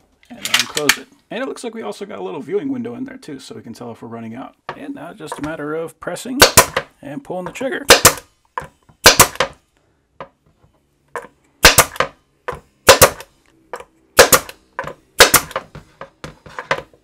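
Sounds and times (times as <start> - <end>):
pneumatic stapler firing: 6.4 - 6.8, 7.9 - 8.2, 9.0 - 9.6, 11.6 - 12.1, 12.9 - 13.3, 14.2 - 14.6, 15.2 - 15.6.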